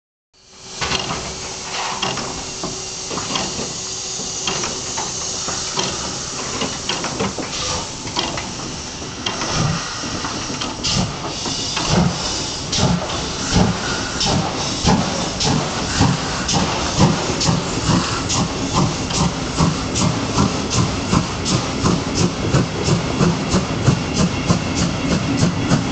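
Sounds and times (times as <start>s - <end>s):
steam locomotive hissing: 0.4s - 25.9s
low exhaust beats: 4.1s - 25.9s.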